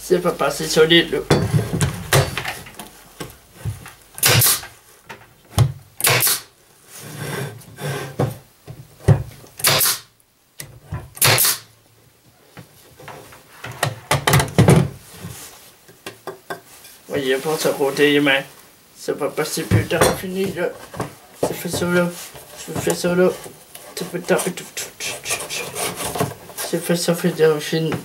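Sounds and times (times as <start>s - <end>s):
boards being handled knocks: 1.2s - 4.0s, 4.6s - 5.9s, 8.1s - 9.4s, 12.5s - 16.7s, 19.6s - 23.6s
pneumatic nailer firing with hiss: 4.2s - 4.7s, 6.0s - 6.5s, 9.6s - 10.1s, 11.2s - 11.7s.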